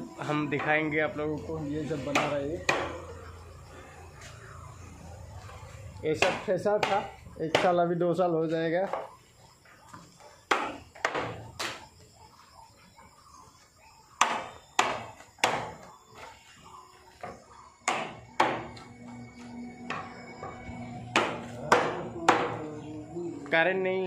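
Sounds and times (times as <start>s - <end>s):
hammer knocking on wood: 17.8s - 18.8s, 19.8s - 22.6s.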